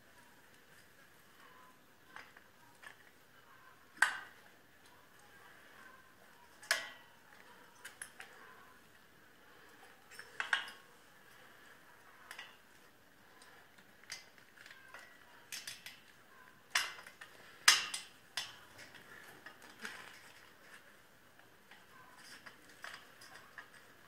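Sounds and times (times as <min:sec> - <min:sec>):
small metallic clicks and clinks: 0:06.4 - 0:08.5, 0:09.8 - 0:10.9, 0:13.3 - 0:20.4.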